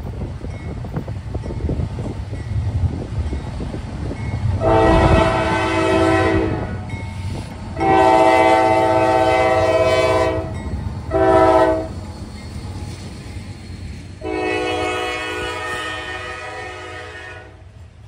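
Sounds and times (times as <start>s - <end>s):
locomotive rumble: 0.0s - 18.0s
locomotive air horn blasts: 4.6s - 6.9s, 7.8s - 11.9s, 14.2s - 17.7s.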